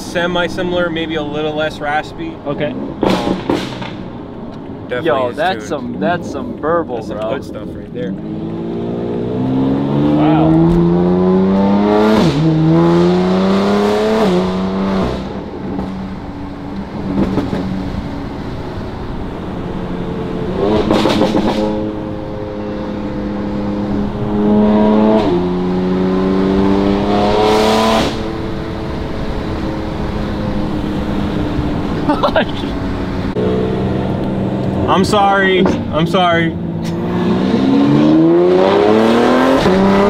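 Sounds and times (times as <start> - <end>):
car engine accelerating hard: 4.8 - 40.0.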